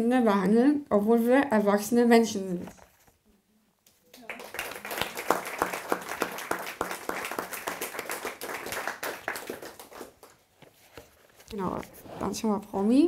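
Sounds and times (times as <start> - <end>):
audience applause: 4.2 - 10.4.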